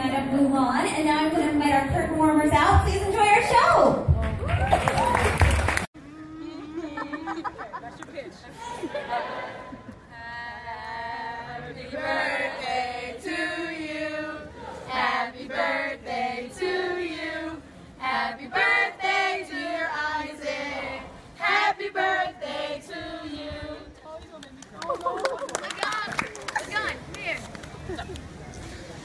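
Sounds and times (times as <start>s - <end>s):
group singing unaccompanied: 10.2s - 23.9s.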